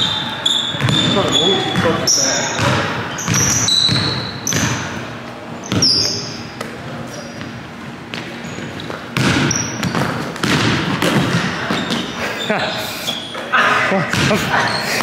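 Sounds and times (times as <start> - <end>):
sneaker squeaks: 0.0 - 15.0
basketball bouncing on hardwood: 0.7 - 2.0, 2.6 - 4.8, 9.2 - 12.0.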